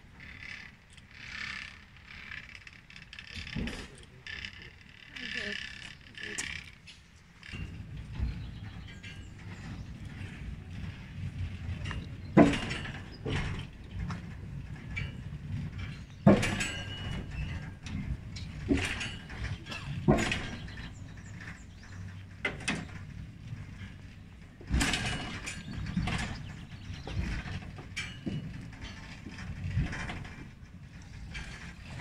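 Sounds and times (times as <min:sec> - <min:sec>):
rail carriage rumbling: 0:00.0 - 0:32.0
metallic clanks and knocks: 0:06.4 - 0:32.0.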